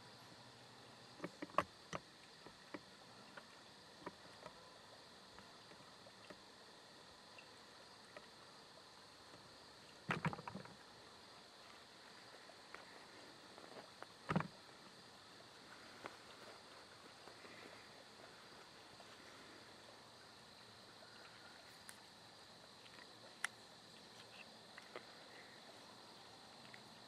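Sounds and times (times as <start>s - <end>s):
faint high hiss: 0.0s - 27.0s
rustle: 0.0s - 27.0s
small clicks: 22.8s - 25.2s.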